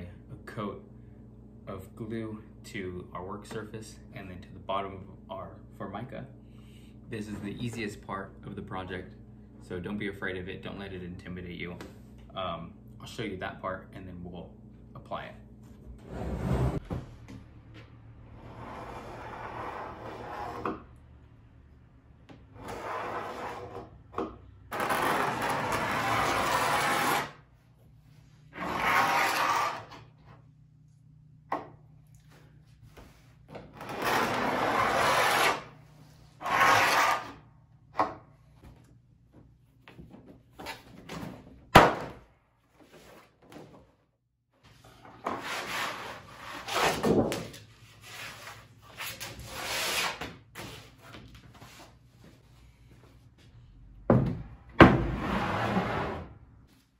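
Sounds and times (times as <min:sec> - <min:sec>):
blade scraping laminate: 0:18.4 - 0:20.9, 0:22.6 - 0:23.9, 0:24.7 - 0:27.4, 0:28.5 - 0:30.1, 0:33.7 - 0:35.8, 0:36.4 - 0:37.4, 0:45.0 - 0:50.9.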